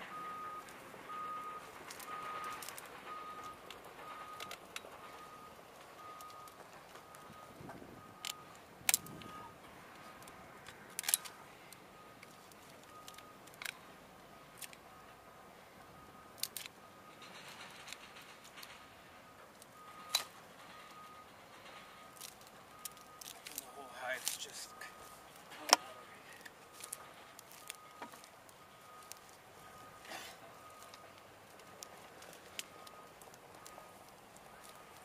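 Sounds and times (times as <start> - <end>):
loppers snapping cane: 16.4 - 16.8.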